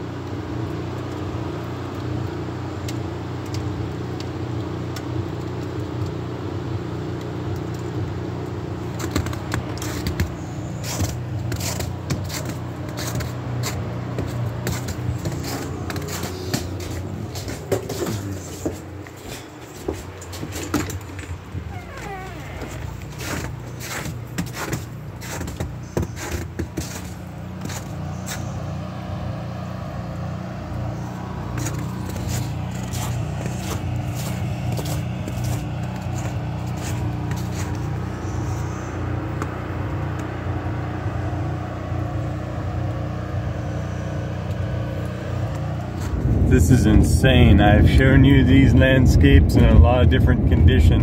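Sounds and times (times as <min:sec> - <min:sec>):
footsteps: 0:08.9 - 0:28.7, 0:31.0 - 0:38.6, 0:45.1 - 0:46.5
wind on microphone: 0:46.0 - 0:51.0.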